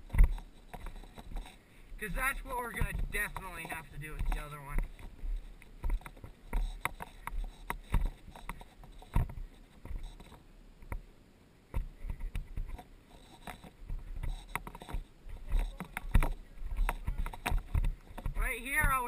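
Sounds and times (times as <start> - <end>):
rustling: 0.0 - 11.1, 11.7 - 19.0.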